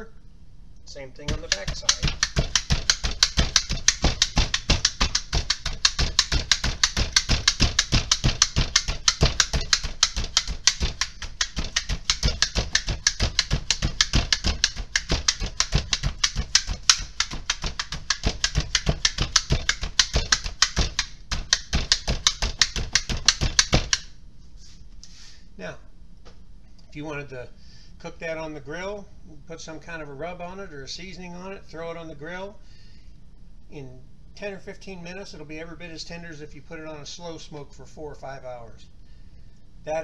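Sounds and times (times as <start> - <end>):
meat tenderizer clacking taps: 1.3 - 24.1.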